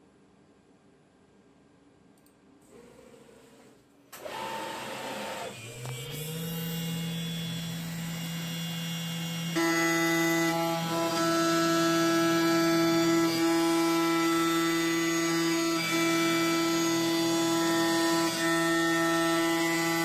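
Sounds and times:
mill spindle whining: 4.2 - 20.0.

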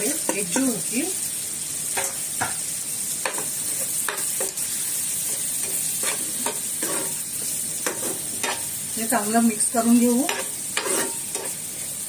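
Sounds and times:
onions frying in oil: 0.0 - 12.0
spatula scraping pan: 3.2 - 8.8, 10.0 - 11.8.

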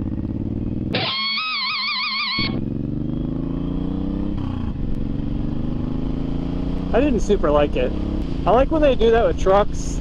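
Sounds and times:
motorcycle engine accelerating: 0.0 - 10.0
electric guitar sting: 0.9 - 2.6.

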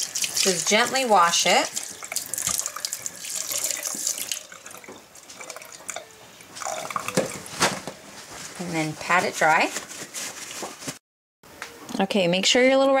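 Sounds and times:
faucet water running and splashing: 0.0 - 7.2.

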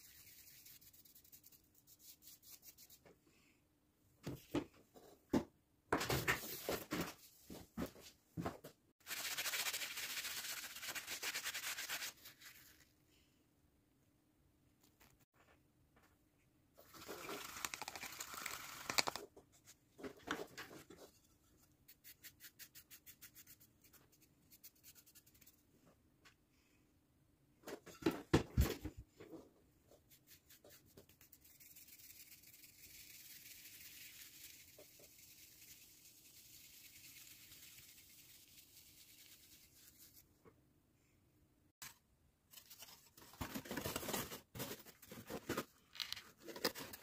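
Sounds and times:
scratchy rustling: 30.1 - 40.3.

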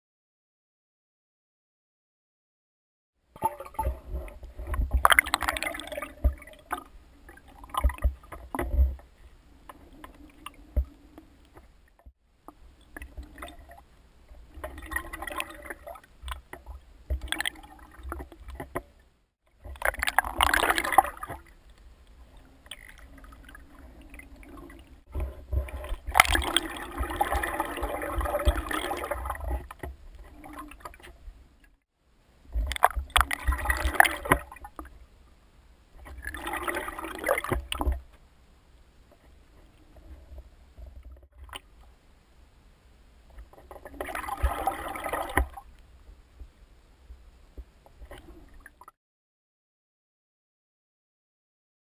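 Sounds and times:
underwater water sloshing: 3.4 - 31.8, 32.4 - 35.3, 36.0 - 38.3, 43.2 - 48.9.

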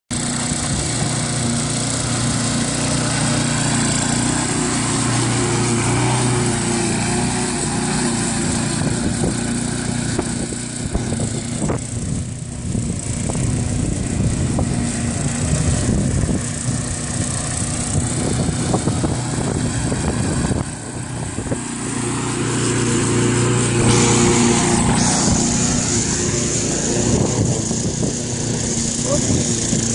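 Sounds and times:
lawn mower running: 0.1 - 29.9.

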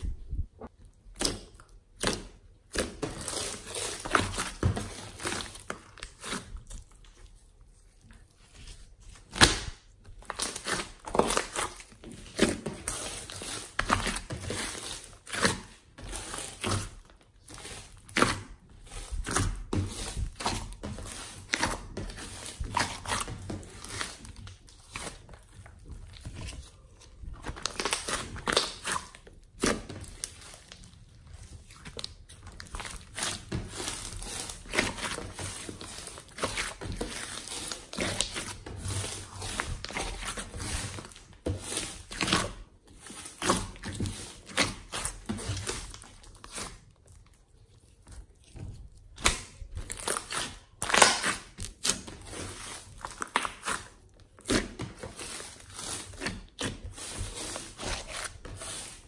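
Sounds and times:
slime squishing by hand: 0.0 - 59.0.

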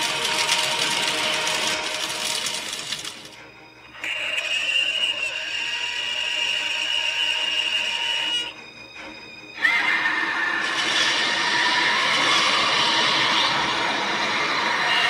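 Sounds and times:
monster screeching roars: 9.6 - 15.0.

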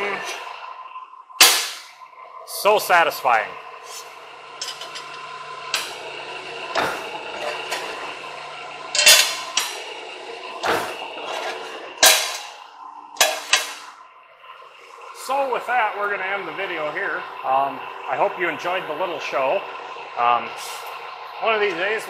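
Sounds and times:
press brake motor and flywheel hum: 0.0 - 22.0
sharp metal clanks: 1.4 - 1.9, 9.0 - 9.8, 12.0 - 12.6, 13.2 - 13.8.

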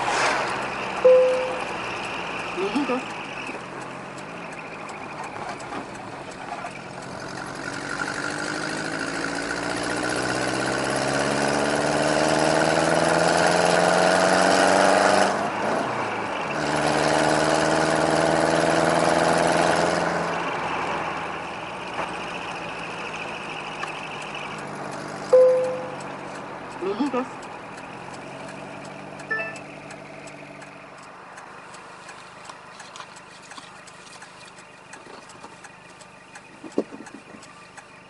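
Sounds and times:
truck engine burbling: 0.0 - 38.0.

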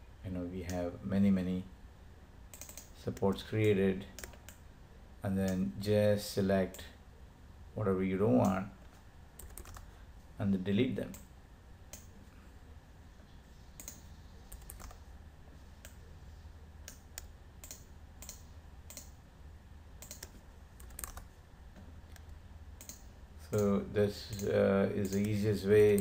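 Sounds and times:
steady low hum: 0.0 - 26.0
computer mouse and keyboard clicks: 2.5 - 4.6, 9.4 - 9.9, 13.8 - 15.0, 16.8 - 19.2, 20.0 - 21.3, 22.1 - 23.7, 24.3 - 26.0.

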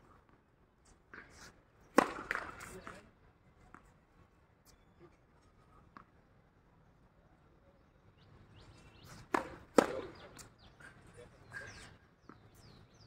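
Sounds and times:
racket hitting tennis ball: 1.9 - 2.8, 9.2 - 10.5.

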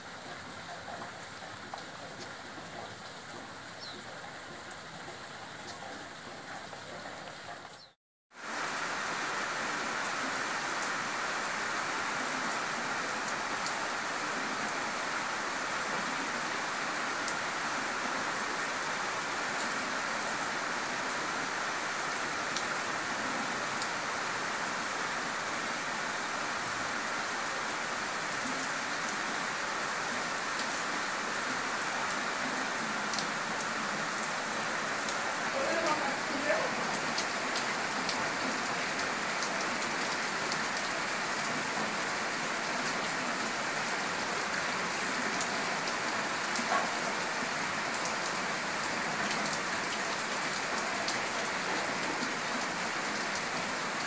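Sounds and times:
steady rain hiss: 0.0 - 54.0.

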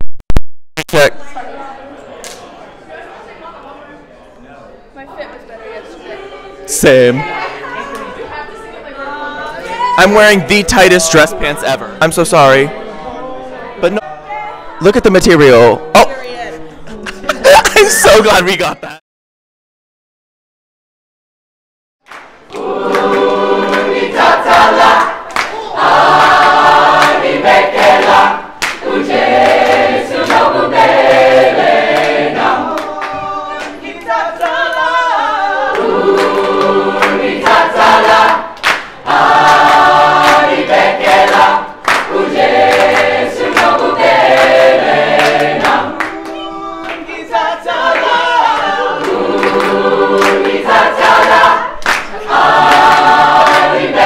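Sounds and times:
choir singing sustained chords: 22.5 - 46.1, 47.0 - 54.0.

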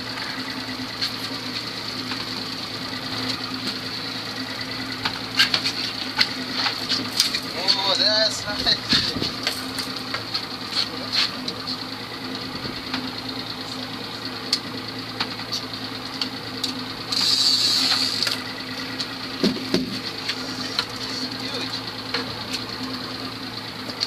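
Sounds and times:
outboard motor idling: 0.0 - 24.0
loud hiss: 17.1 - 18.2
fishing reel gears whirring: 17.1 - 18.4.

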